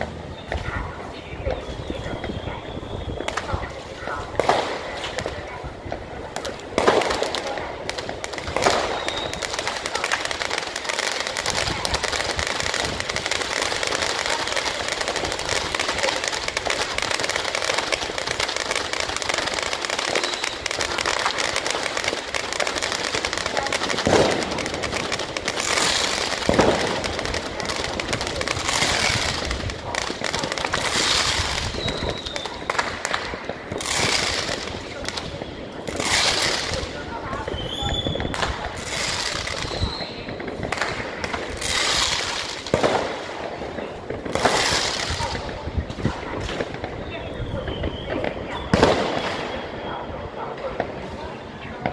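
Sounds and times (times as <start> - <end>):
fireworks bangs: 0.0 - 51.9
fireworks crackling: 0.0 - 51.9.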